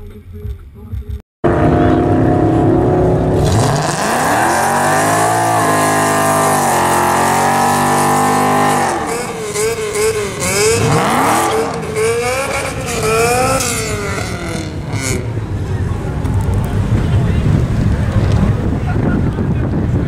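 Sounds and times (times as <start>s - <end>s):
car engine revving: 1.4s - 19.2s.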